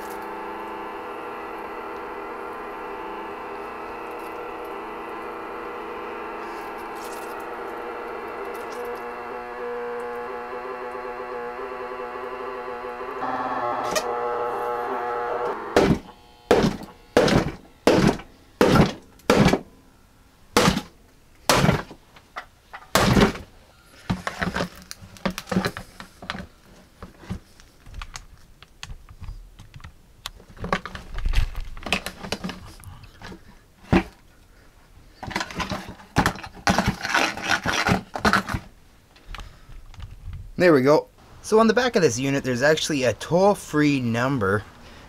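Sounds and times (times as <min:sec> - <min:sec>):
broken pieces crunching and rattling: 0:06.3 - 0:10.2, 0:20.6 - 0:23.5, 0:24.1 - 0:26.5, 0:27.1 - 0:34.2, 0:35.1 - 0:38.8
hatchet chopping wooden board: 0:15.7 - 0:19.7, 0:20.6 - 0:22.0, 0:22.9 - 0:23.4.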